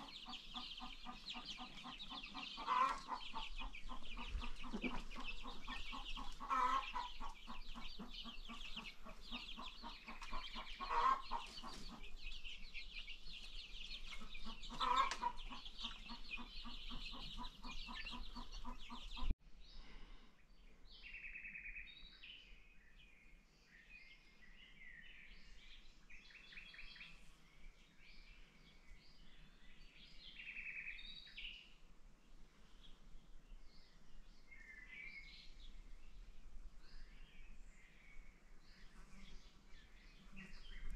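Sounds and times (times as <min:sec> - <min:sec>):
baby chicks peeping: 0:00.0 - 0:19.3, 0:38.6 - 0:40.9
chicken calls: 0:00.0 - 0:19.3.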